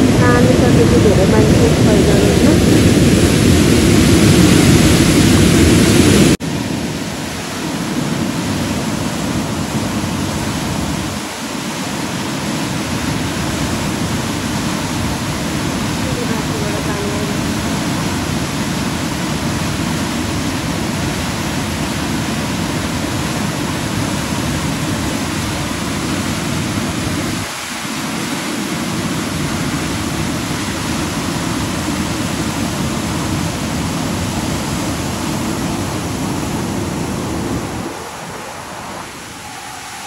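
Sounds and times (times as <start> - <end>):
turbulent river water rushing: 0.0 - 40.0.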